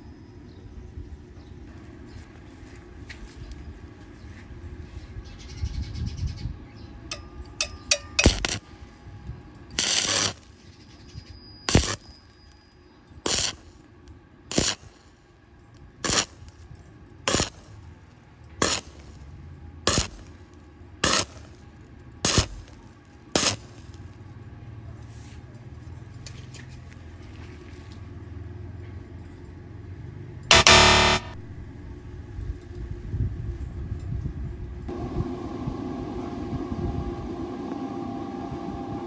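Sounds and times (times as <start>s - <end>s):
welding arc crackling bursts: 8.2s - 8.6s, 9.8s - 10.6s, 11.7s - 12.0s, 13.3s - 13.8s, 14.5s - 15.2s, 16.0s - 16.6s, 17.3s - 17.8s, 18.6s - 19.2s, 19.9s - 20.4s, 21.0s - 21.6s, 22.2s - 22.7s, 23.4s - 24.0s, 30.5s - 31.4s
low steady hum: 30.5s - 32.3s.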